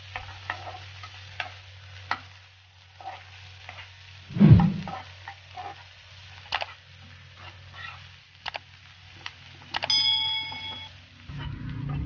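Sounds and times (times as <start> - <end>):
onions frying in hot oil: 0.0 - 12.0
loud dull thump: 4.3 - 4.9
steady low hum: 4.3 - 5.0.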